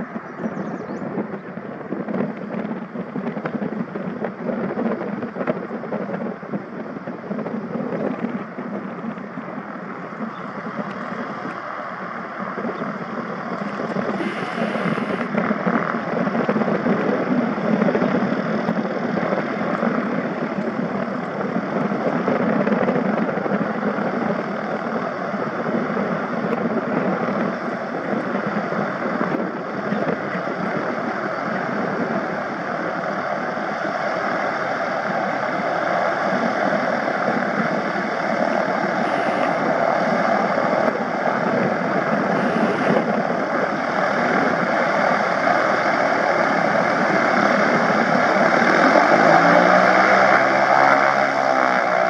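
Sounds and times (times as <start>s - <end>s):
propeller aircraft engines droning: 0.0s - 52.0s.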